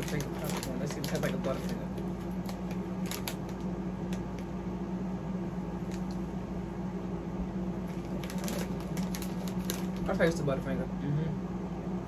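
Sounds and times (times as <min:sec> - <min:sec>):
popcorn bag crinkling: 0:00.0 - 0:04.5, 0:05.8 - 0:06.2, 0:07.8 - 0:10.7.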